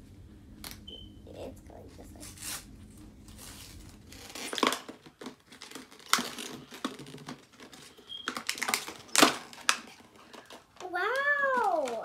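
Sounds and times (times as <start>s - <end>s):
plastic packaging crinkling: 2.2s - 12.0s.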